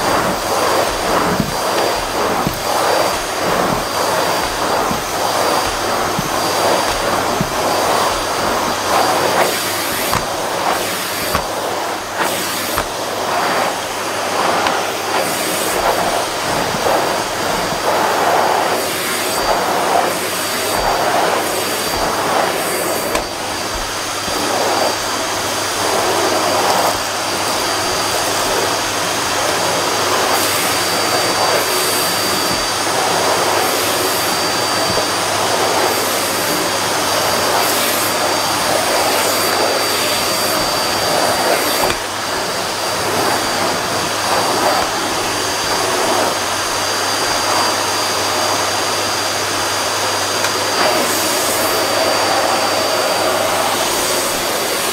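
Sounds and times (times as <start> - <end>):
vacuum cleaner running on carpet: 0.0 - 54.9.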